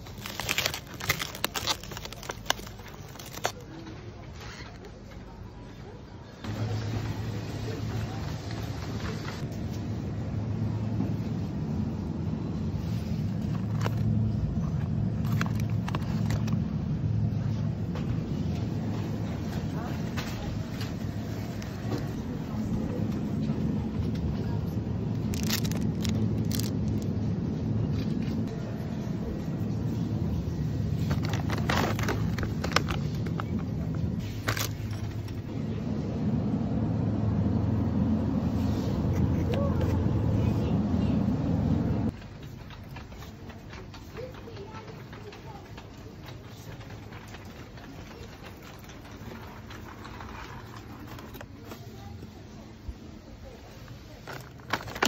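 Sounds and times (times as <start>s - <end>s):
plastic packaging crinkling: 0.0s - 4.0s, 13.4s - 16.6s, 25.2s - 27.2s, 30.9s - 35.5s, 53.8s - 55.0s
refrigerated display cases humming: 0.0s - 55.0s.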